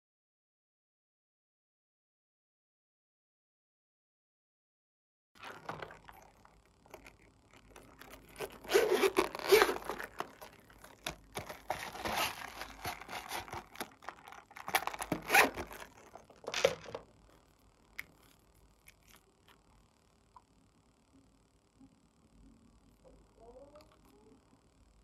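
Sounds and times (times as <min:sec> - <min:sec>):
zipper pulled open: 0:05.4 - 0:06.3, 0:07.8 - 0:17.0
handling of pencil case: 0:05.4 - 0:17.1.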